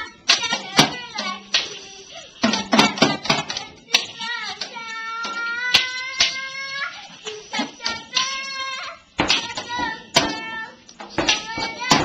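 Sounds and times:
toy drum kit and cymbal hits: 0.0s - 12.0s.

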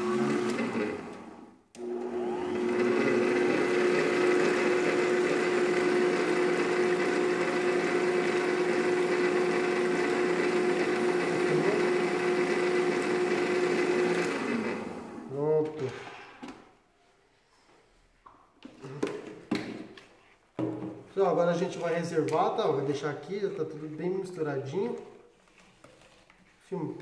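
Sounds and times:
stand mixer whisking batter: 0.0s - 15.3s.

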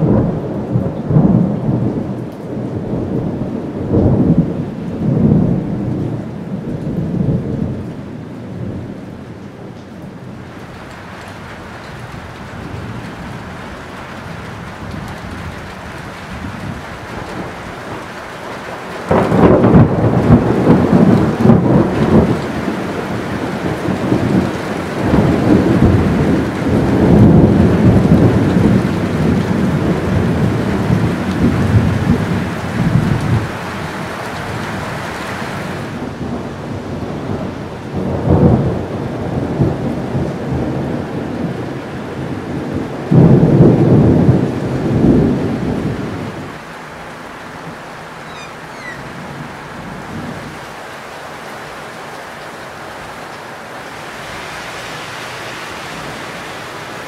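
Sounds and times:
thunder rolling: 0.0s - 7.9s, 14.6s - 33.8s, 35.8s - 46.6s, 47.6s - 50.6s
heavy rain: 0.0s - 57.0s.

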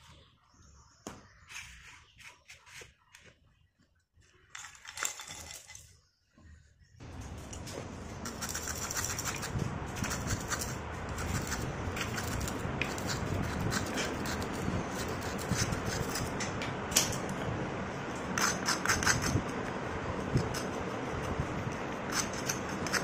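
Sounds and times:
knife scraping dried clay crust: 8.2s - 16.4s, 18.4s - 23.0s.

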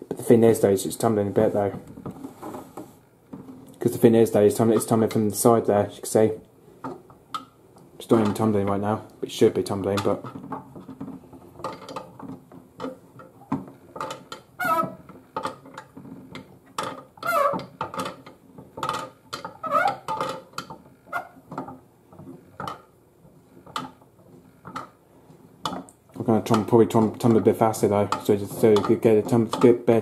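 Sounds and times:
toy washing machine drum clicking: 11.6s - 20.8s, 22.6s - 22.9s
short squeaks: 14.6s - 15.0s, 17.2s - 17.6s, 19.6s - 20.1s.

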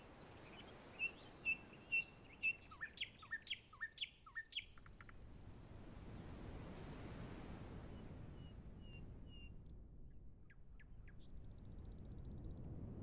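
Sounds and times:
songbird singing: 0.2s - 5.9s.

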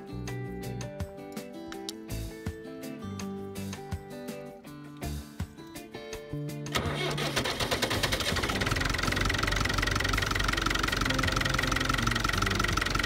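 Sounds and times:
tractor diesel engine idling: 6.8s - 13.0s.

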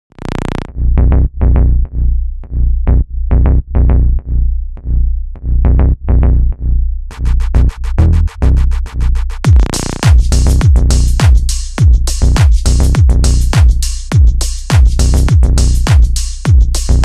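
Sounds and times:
electronic music with heavy bass: 0.1s - 17.0s
fast hi-hat ticks: 9.2s - 17.0s.

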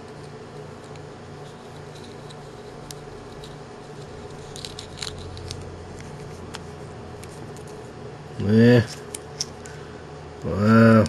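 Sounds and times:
steady low hum: 0.0s - 11.0s
clicks and scrapes of small metal parts: 0.8s - 5.7s.

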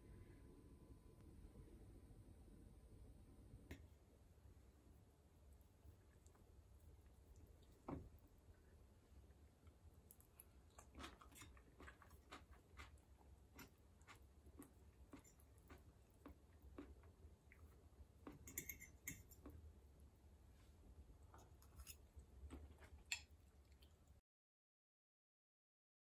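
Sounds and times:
faint chewing: 5.7s - 19.7s, 21.2s - 24.2s
fork clicking against a plate: 18.3s - 19.5s.

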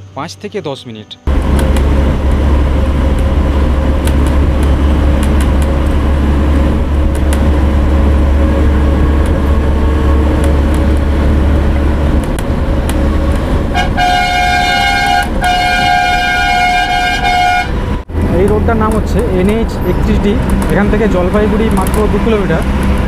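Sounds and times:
horn blaring: 1.1s - 18.1s
bus rumbling at speed: 1.3s - 23.0s.

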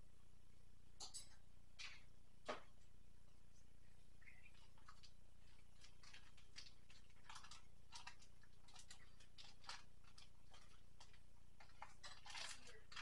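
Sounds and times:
plastic wrapping crinkling: 4.5s - 13.0s.

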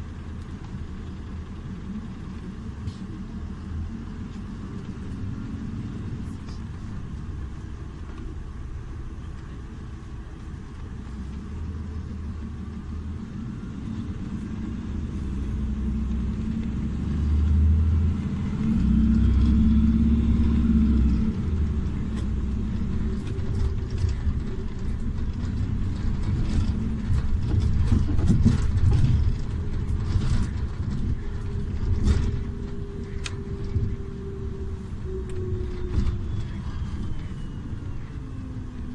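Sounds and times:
bus engine rumble and hum: 0.0s - 38.9s
rattles and clicks: 18.2s - 34.4s.

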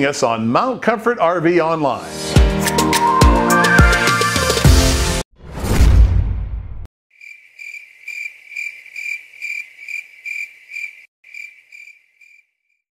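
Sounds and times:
cricket chirping: 7.2s - 12.5s.

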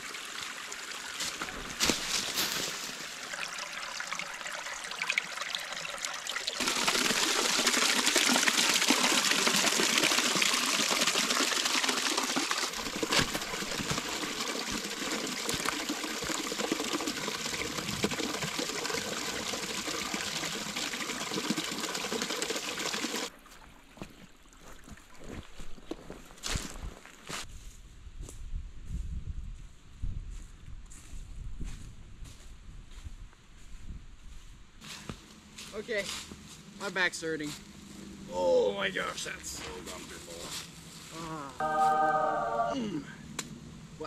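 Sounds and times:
stream trickling over rocks: 0.0s - 25.3s.

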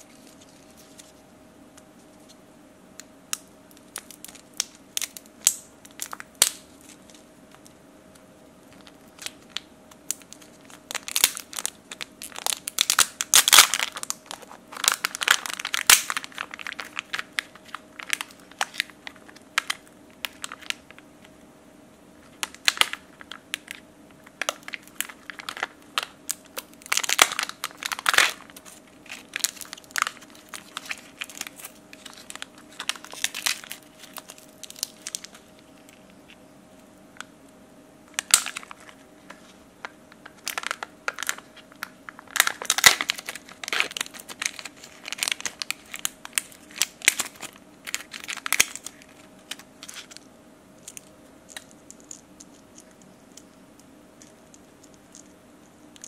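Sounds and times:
plastic wrapping crinkling: 0.0s - 1.2s, 3.3s - 7.8s, 8.6s - 21.1s, 22.2s - 36.4s, 38.1s - 53.6s
faint steady hum: 0.0s - 56.0s.

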